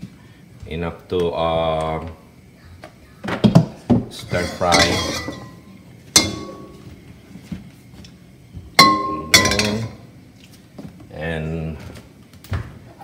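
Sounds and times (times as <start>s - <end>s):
wok clanking on stove grate: 4.3s - 6.8s, 8.8s - 10.0s.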